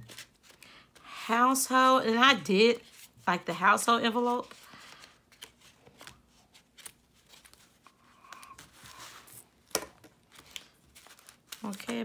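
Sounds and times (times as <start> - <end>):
paper envelopes rustling: 0.0 - 1.1, 4.1 - 12.0.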